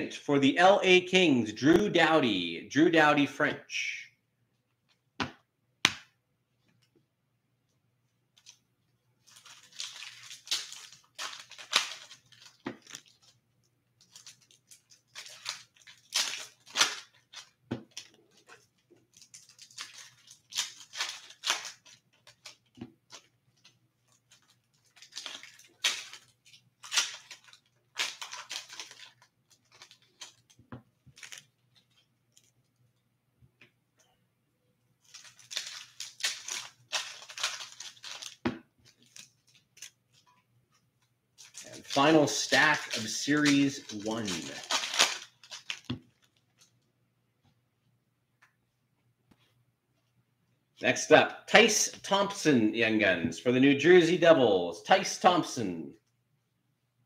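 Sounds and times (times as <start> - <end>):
foil wrappers crinkling and tearing: 9.2 - 13.4, 14.0 - 32.5, 35.0 - 40.3, 41.4 - 46.7.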